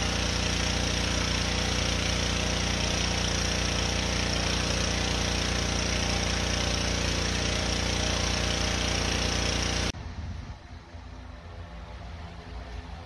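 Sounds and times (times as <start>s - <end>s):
water spray hissing: 0.0s - 9.9s
pressure washer motor drone: 0.0s - 10.0s.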